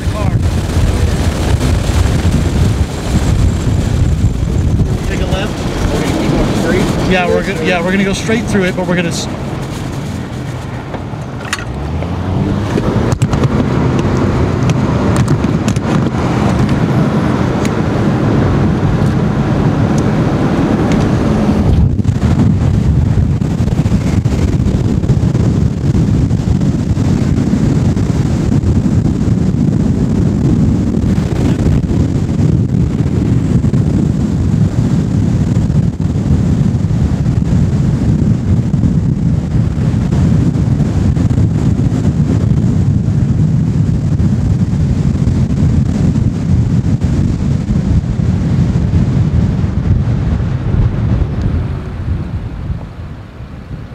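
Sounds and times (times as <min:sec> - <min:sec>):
car engine accelerating: 0:00.0 - 0:29.5
road and wind rumble: 0:00.0 - 0:53.9.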